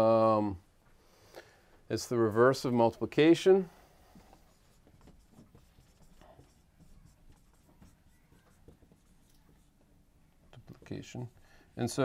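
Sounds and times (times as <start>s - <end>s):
marker writing on whiteboard: 4.1s - 11.4s.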